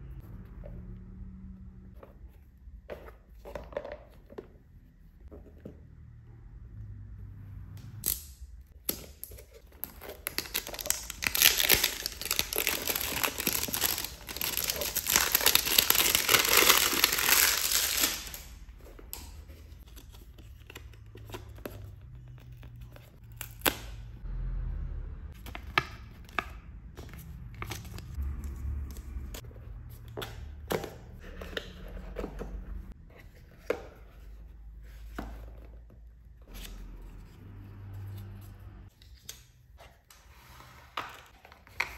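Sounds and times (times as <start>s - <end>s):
plastic wrap tearing and crinkling: 9.8s - 18.6s.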